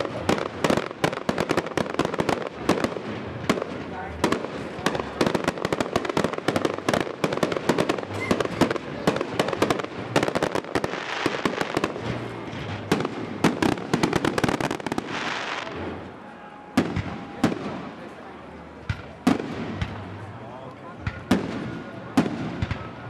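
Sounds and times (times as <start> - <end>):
fireworks hissing crackle: 0.0 - 16.2
fireworks cracks and bangs: 0.0 - 23.0.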